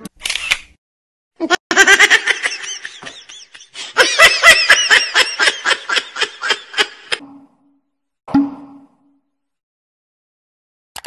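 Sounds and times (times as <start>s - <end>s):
high-pitched laughter: 1.4s - 7.2s.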